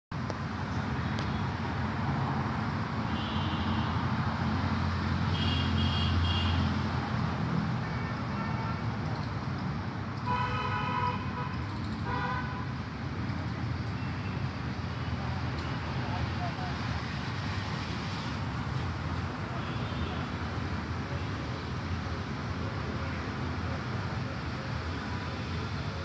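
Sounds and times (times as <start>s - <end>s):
road traffic rumble: 0.1s - 26.0s
vehicle horns tooting: 3.1s - 4.0s, 5.3s - 6.8s, 10.2s - 12.7s.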